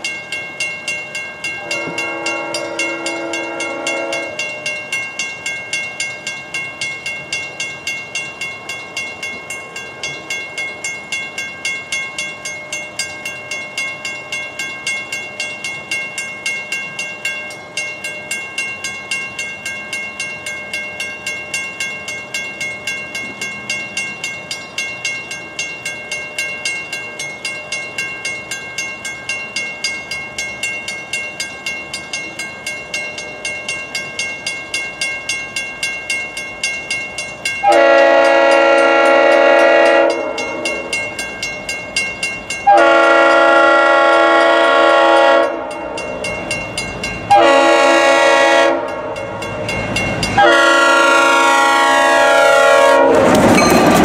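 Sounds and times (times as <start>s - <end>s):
crossing warning bell ringing: 0.0s - 54.0s
locomotive air horn blasts: 1.6s - 4.6s, 37.6s - 40.6s, 42.7s - 45.7s, 47.3s - 48.9s, 50.4s - 53.2s.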